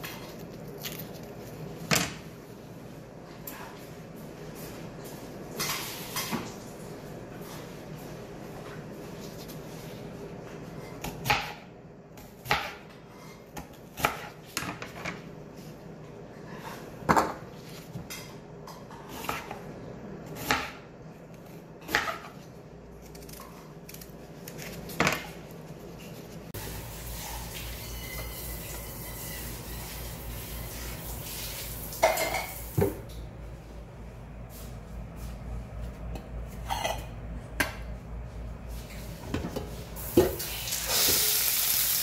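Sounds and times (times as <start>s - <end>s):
knife chopping on cutting board: 11.0s - 12.9s, 20.4s - 20.8s
steady low hum: 33.0s - 40.1s.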